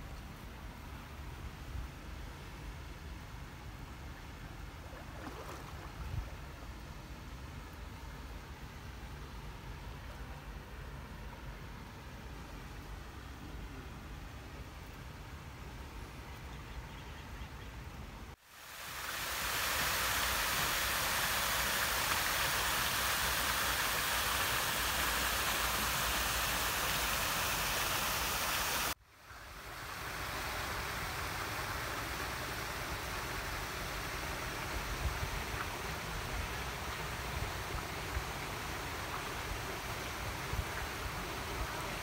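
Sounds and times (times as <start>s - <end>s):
steady outdoor hiss: 0.0s - 42.0s
water rushing: 4.4s - 14.0s, 18.4s - 42.0s.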